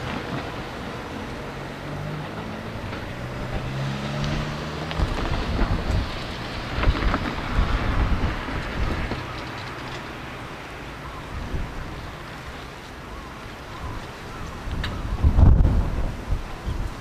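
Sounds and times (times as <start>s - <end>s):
train engine hum: 0.0s - 17.0s
heavy low rumble with knocks: 2.2s - 9.3s.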